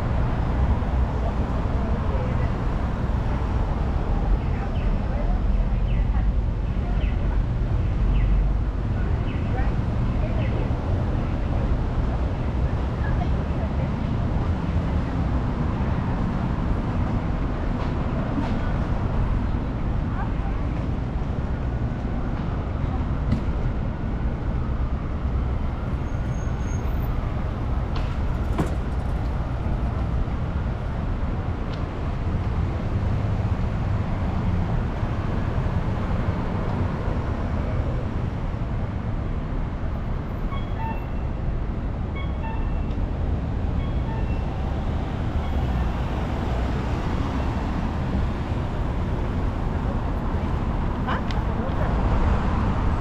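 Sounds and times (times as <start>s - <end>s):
city traffic rumble: 0.0s - 53.0s.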